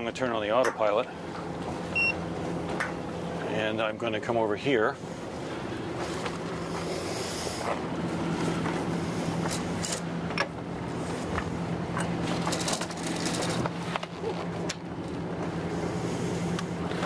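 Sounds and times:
diesel engine idling: 4.6 - 17.0.

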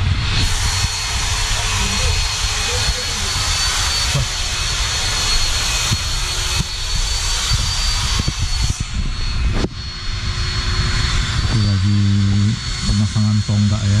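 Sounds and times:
engine running with rumbling hiss: 0.0 - 14.0
high whine: 0.0 - 14.0.

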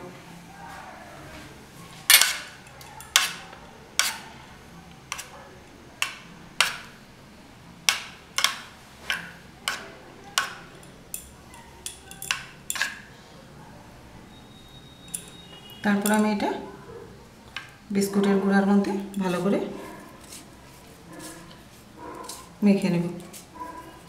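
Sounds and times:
steel spoon clinking on a dish: 2.1 - 4.2, 8.4 - 13.1, 15.0 - 16.2.

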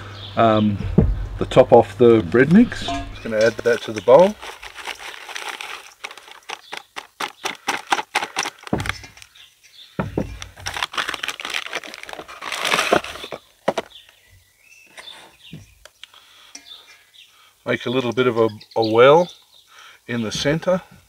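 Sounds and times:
plastic bag crinkling: 2.7 - 9.4, 10.2 - 14.2.

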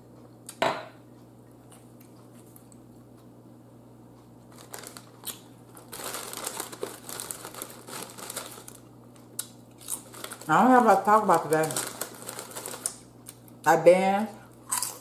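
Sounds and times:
chip bag crinkling: 4.5 - 13.6.

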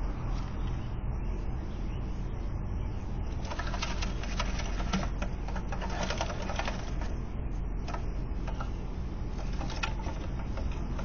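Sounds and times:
low hum: 0.0 - 11.0
bird wings flapping: 3.4 - 7.1.

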